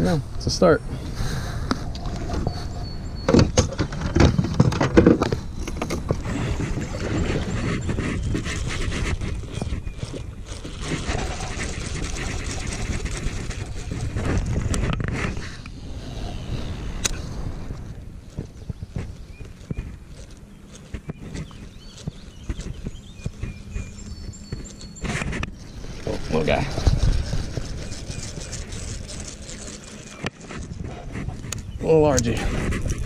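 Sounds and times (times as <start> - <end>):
low rumble and rustle: 0.0 - 33.0.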